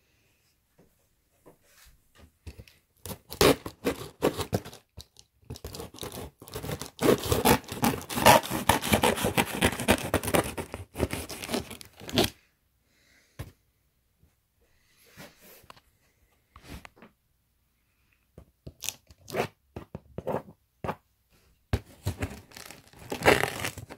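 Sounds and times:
packing tape tearing off box: 3.1 - 4.9, 5.5 - 12.4, 22.0 - 23.9
cardboard scraping and crackling: 5.5 - 12.4, 21.8 - 23.9.

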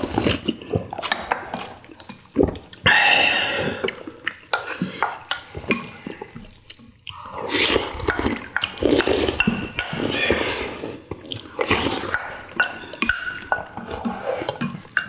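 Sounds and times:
broth slurping: 0.0 - 15.0
utensils clinking on bowls: 8.0 - 15.0.

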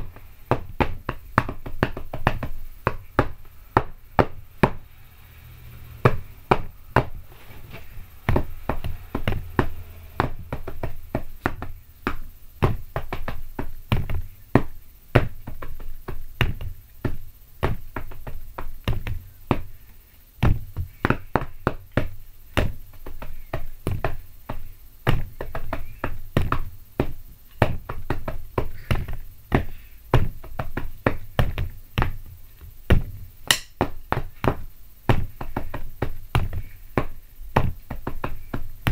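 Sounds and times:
drumsticks beating on bed: 32.9 - 38.9.

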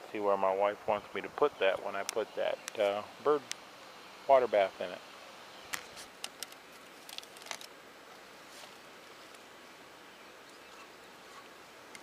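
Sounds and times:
faint outdoor background: 0.0 - 12.0
rustling through shrubs: 0.8 - 12.0.

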